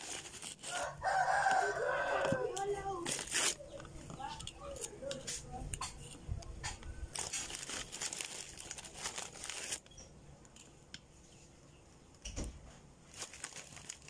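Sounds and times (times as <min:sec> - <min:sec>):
plastic wrapper crinkling: 0:00.0 - 0:05.2, 0:06.0 - 0:10.7, 0:13.0 - 0:14.0.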